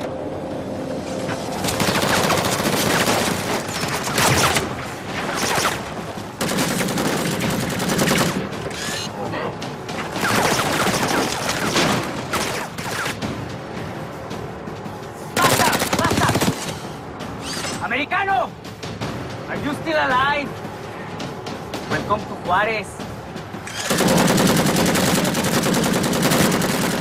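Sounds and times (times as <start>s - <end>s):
music: 0.0s - 27.0s
rapid automatic rifle fire: 23.8s - 27.0s.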